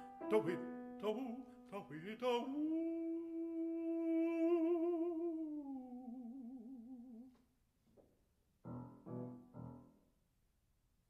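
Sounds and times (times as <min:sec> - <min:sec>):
piano chords: 0:00.0 - 0:02.4, 0:08.6 - 0:10.0
baritone voice singing: 0:00.0 - 0:07.4.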